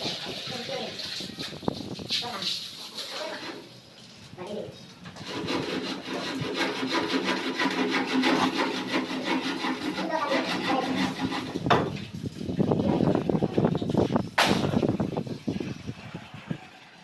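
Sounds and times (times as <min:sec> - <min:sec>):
rapid rhythmic scraping: 0:05.2 - 0:11.7
sharp knock: 0:14.4 - 0:14.8.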